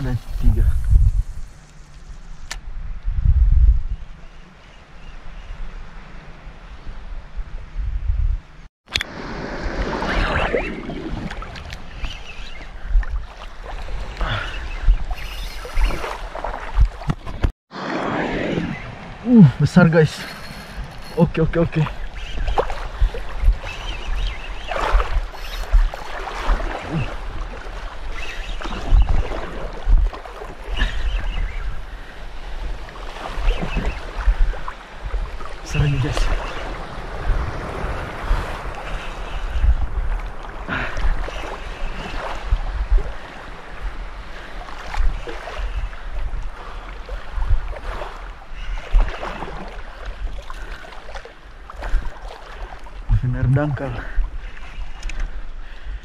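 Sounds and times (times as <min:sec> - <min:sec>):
wind buffeting microphone: 0:00.0 - 0:04.3, 0:06.8 - 0:17.5, 0:18.1 - 0:50.7
water slapping against boat: 0:09.0 - 0:17.5, 0:20.3 - 0:31.5, 0:32.6 - 0:55.4.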